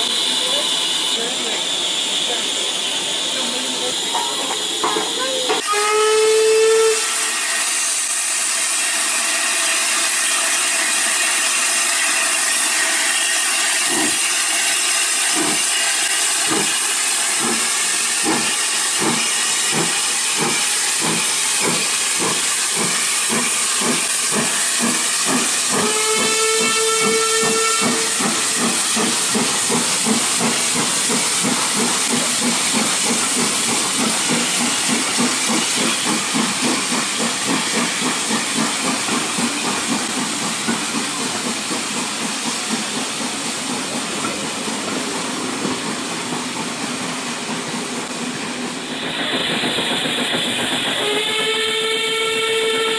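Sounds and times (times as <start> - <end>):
steam locomotive whistle: 0.0 - 2.6, 4.4 - 29.2, 49.4 - 52.9
steam hiss: 0.0 - 52.9
steam exhaust chuffs: 7.6 - 52.9.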